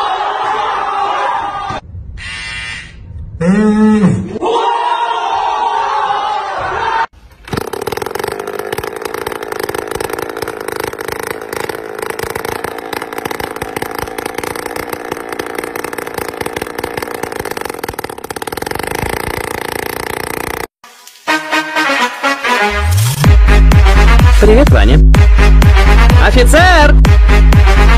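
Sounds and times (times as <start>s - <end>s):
small petrol engine running: 7.4s - 20.8s.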